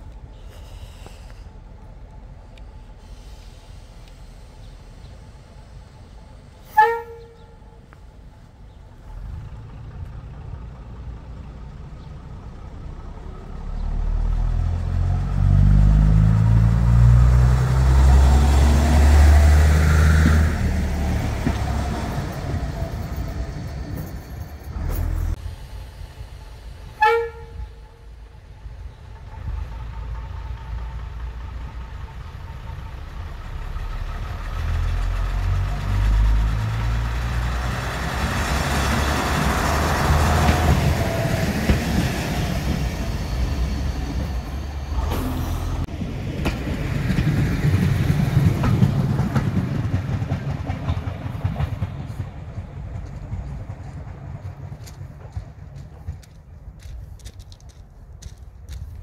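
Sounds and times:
train rumbling past: 0.0s - 59.0s
train horn toot: 6.7s - 7.8s, 27.0s - 28.2s.

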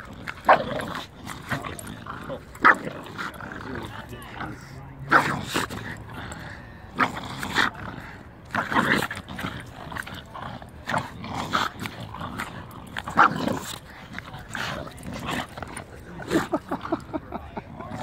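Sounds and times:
dogs growling while tugging toy: 0.0s - 18.0s.

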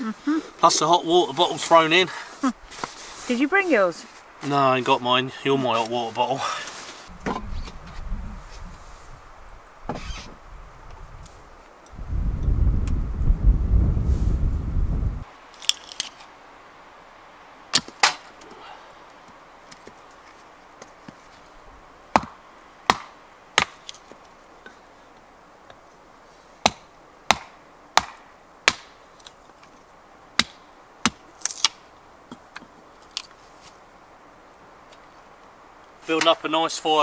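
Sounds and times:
axe chopping wood: 22.1s - 23.8s, 26.6s - 29.0s, 30.4s - 31.8s.

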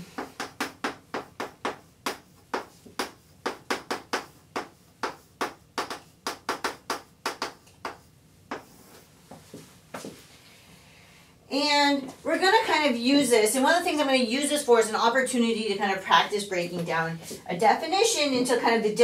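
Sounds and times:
chalk tapping and scraping on blackboard: 0.1s - 10.2s.

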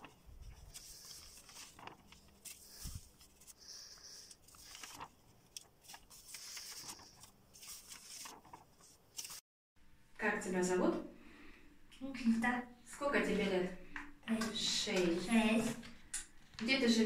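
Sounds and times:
paper rustling and sliding: 0.0s - 9.4s.

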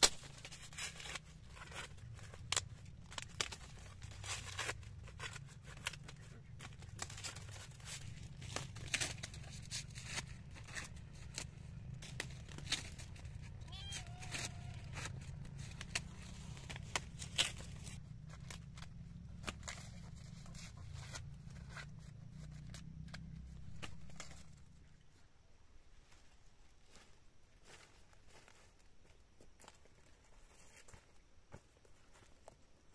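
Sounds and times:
dry corn husks crackling: 0.0s - 25.3s.

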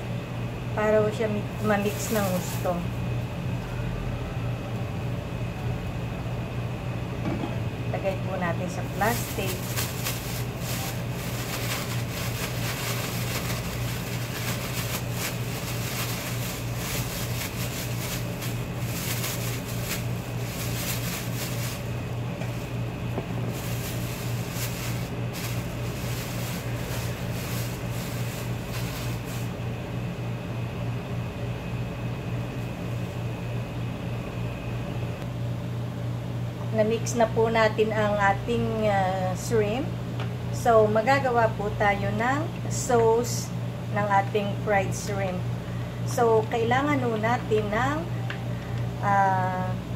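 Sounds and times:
low machine hum: 0.0s - 49.9s
plastic bag crinkling: 1.6s - 2.8s, 8.8s - 22.8s, 23.4s - 29.5s.

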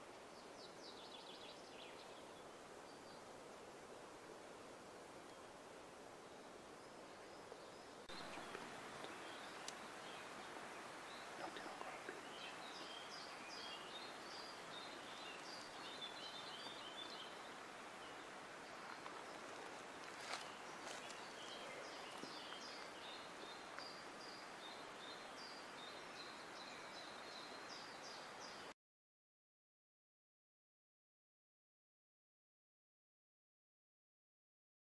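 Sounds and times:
small songbirds chirping: 0.0s - 4.0s, 4.8s - 28.7s
background hiss: 0.0s - 28.7s.

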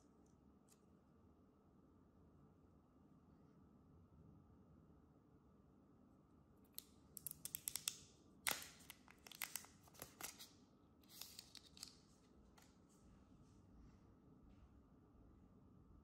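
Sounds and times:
plastic film crinkling off: 8.5s - 10.5s.

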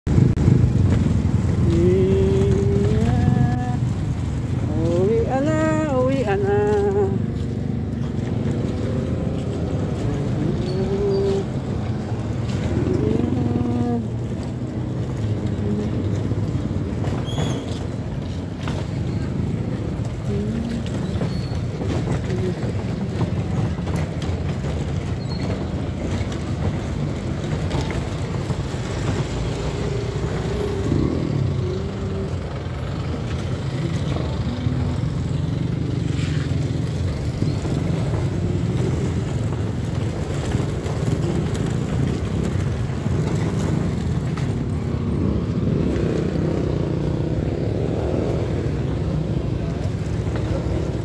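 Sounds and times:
cars driving past: 0.1s - 51.0s.

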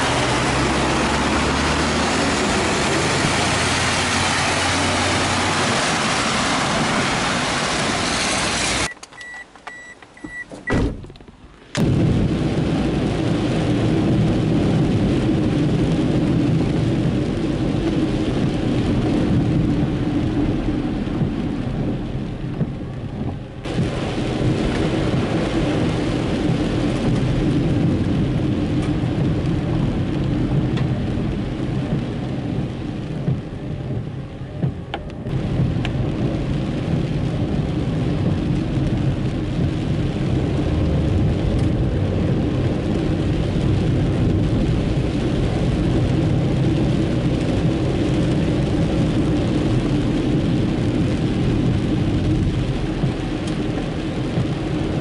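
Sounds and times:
tyres hissing on wet road: 0.0s - 8.9s, 23.6s - 34.6s, 35.3s - 55.0s
rain on car: 0.0s - 55.0s.

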